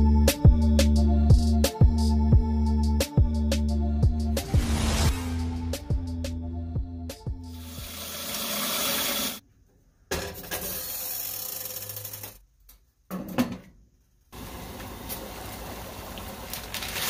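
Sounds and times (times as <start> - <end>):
tap water running into a metal pot: 7.7 - 9.4.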